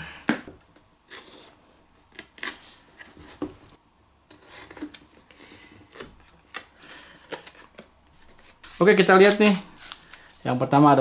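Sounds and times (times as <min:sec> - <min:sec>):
cardboard and plastic packaging rustling: 0:05.9 - 0:11.0.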